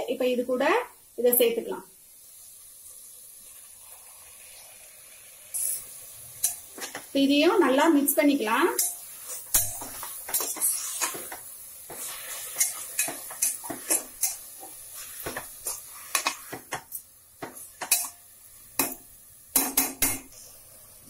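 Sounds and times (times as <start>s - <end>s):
faint sizzle of frying: 0.0s - 21.0s
ladle scraping and knocking in pot: 8.8s - 18.1s.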